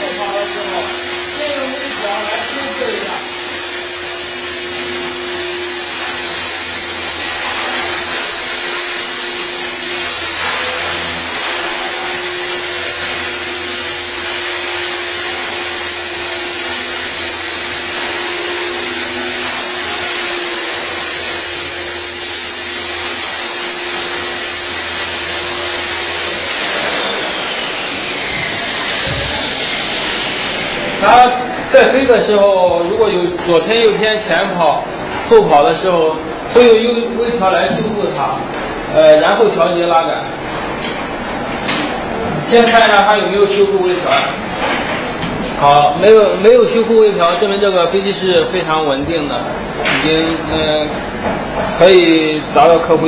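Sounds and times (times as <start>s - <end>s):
rc helicopter motor whining: 0.0s - 32.0s
helicopter rotor noise: 0.0s - 32.3s.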